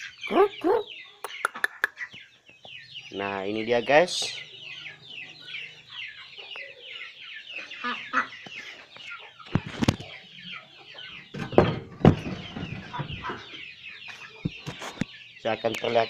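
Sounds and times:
chickens clucking: 0.0s - 16.0s
chicks peeping: 0.0s - 16.0s
loud thumps: 11.3s - 13.3s.

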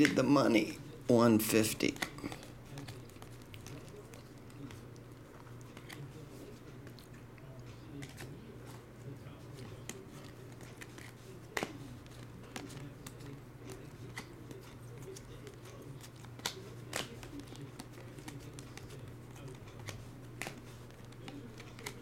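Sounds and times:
cards snapping and clicking: 9.6s - 22.0s.

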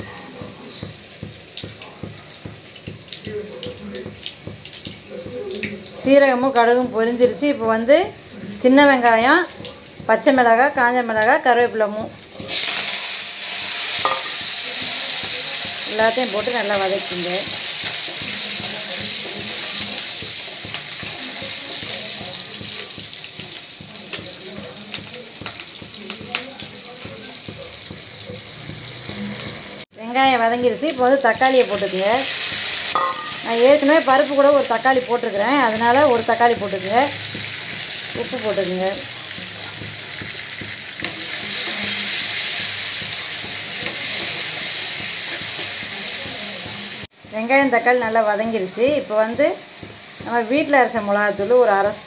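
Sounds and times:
food sizzling in hot oil: 0.0s - 52.0s.

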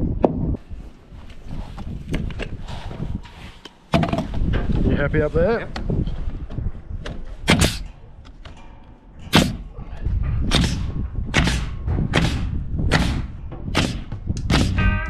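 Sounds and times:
nail gun firing: 7.5s - 7.9s, 9.3s - 9.7s, 10.5s - 14.8s.

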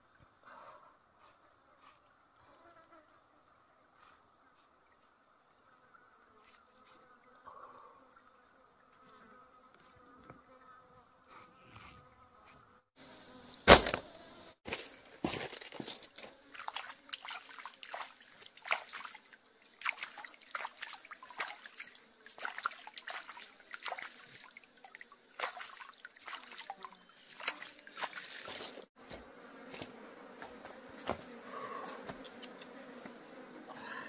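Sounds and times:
hands splashing in water: 16.5s - 28.8s.

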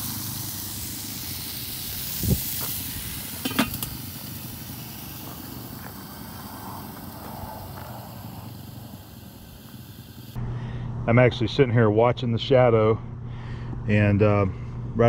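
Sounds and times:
chicken sizzling on grill: 0.0s - 10.4s
metal lid clanking: 3.4s - 4.0s.

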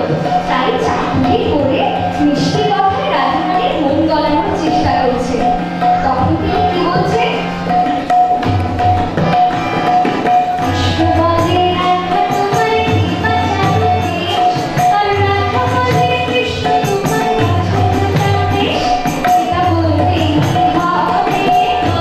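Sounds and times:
drum keeping time: 0.0s - 22.0s
harmonium chords: 0.0s - 22.0s
woman singing into a microphone: 10.7s - 22.0s.

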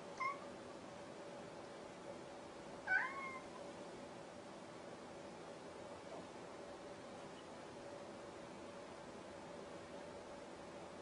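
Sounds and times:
cat meowing: 0.2s - 0.4s, 2.9s - 3.6s.

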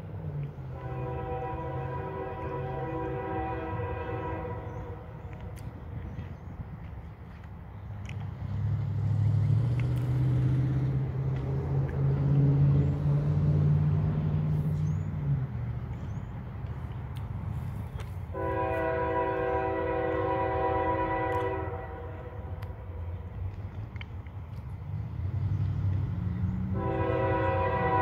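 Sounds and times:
locomotive air horn chord: 0.7s - 5.2s, 18.3s - 23.0s, 26.7s - 28.0s.

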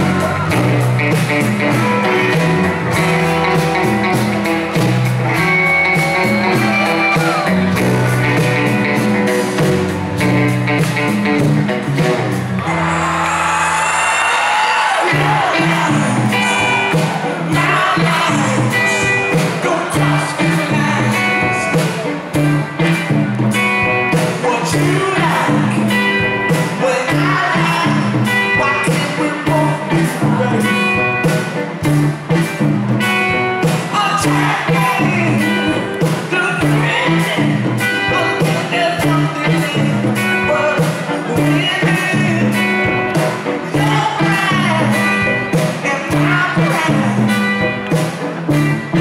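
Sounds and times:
person singing: 0.0s - 3.7s, 12.6s - 23.1s, 23.8s - 31.6s, 33.6s - 48.1s
electric guitar: 0.0s - 49.0s
drum beat: 14.8s - 29.1s.

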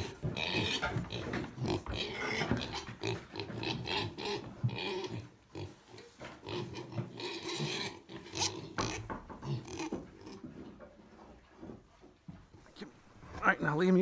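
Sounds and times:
piglets grunting: 0.0s - 10.5s.

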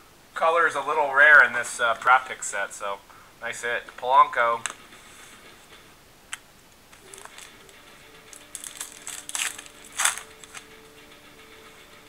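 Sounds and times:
cards rustling and crinkling: 6.9s - 10.7s.

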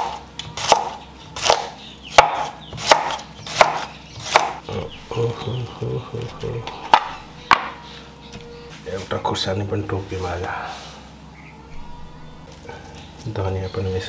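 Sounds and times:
knife chopping on wooden board: 0.0s - 4.6s, 6.8s - 8.4s.

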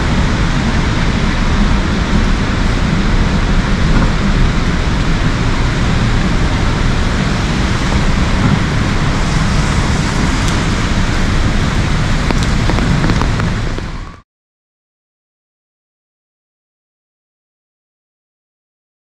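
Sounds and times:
heavy rain hiss: 0.0s - 14.2s
low rumble: 0.0s - 14.2s.

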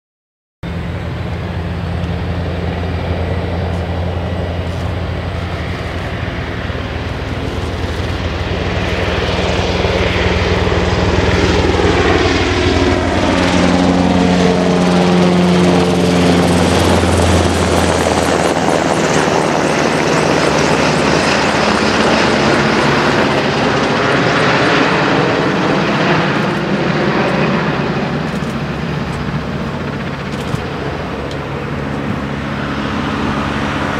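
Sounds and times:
helicopter flying overhead: 0.6s - 33.9s.

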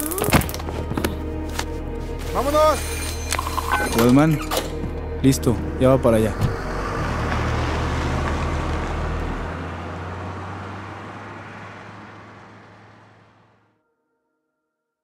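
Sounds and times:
van driving off: 4.7s - 13.7s.

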